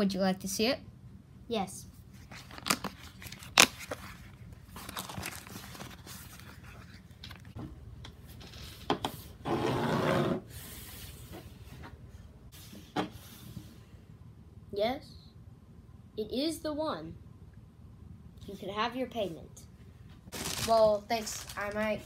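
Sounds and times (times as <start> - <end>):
paper rustling: 2.2 - 7.6, 20.3 - 22.0.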